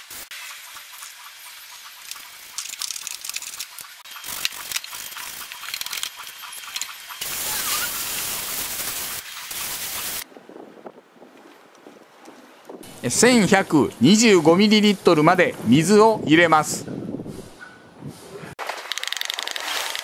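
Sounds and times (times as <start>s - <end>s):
hose spraying water: 0.0s - 10.3s.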